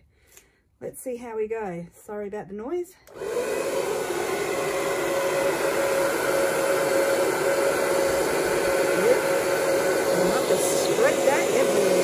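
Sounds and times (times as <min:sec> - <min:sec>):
hair dryer blowing: 0:03.0 - 0:12.0.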